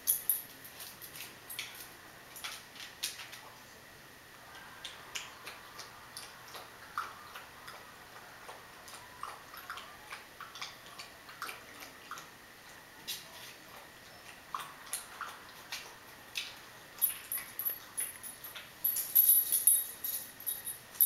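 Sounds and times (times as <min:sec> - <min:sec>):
puppy lapping water: 0:05.1 - 0:12.9, 0:13.6 - 0:16.6.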